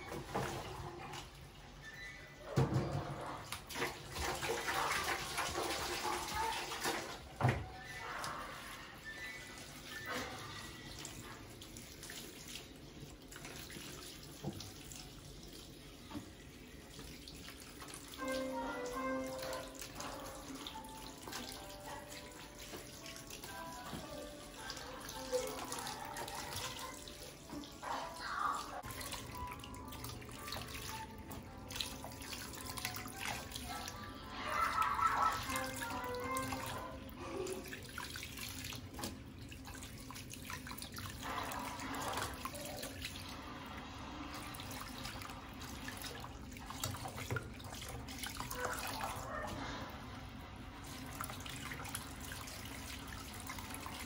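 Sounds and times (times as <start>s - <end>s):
tap water running into basin: 0.0s - 54.0s.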